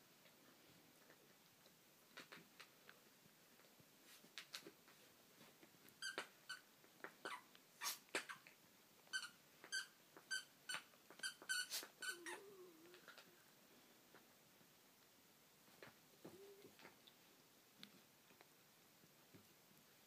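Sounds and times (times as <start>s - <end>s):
squeaky dog toy squeaking: 6.0s - 6.6s, 7.2s - 8.5s, 9.1s - 12.4s
low dog sound: 11.7s - 13.5s.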